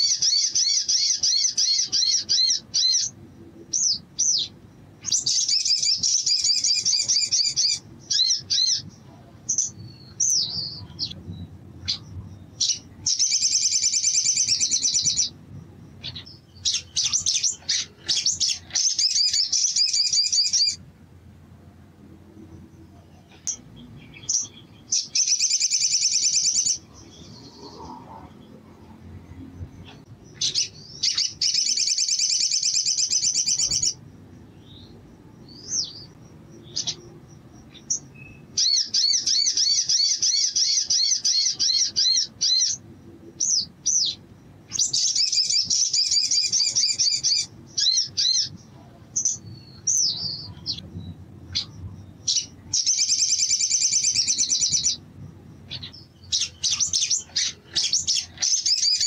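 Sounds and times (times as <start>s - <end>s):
bird high rapid trills: 11.8s - 20.8s, 29.9s - 34.0s, 55.6s - 59.0s.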